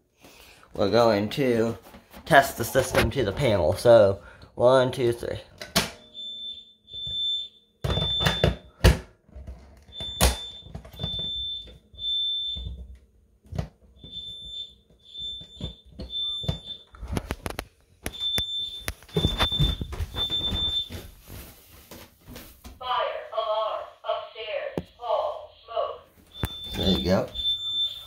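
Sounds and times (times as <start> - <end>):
fire alarm beeping: 6.0 - 8.8, 9.8 - 13.0, 13.9 - 21.2, 22.8 - 28.0.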